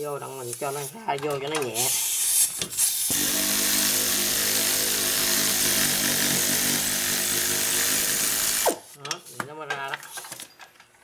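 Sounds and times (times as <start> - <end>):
air ratchet motor whirring: 1.8 - 8.9.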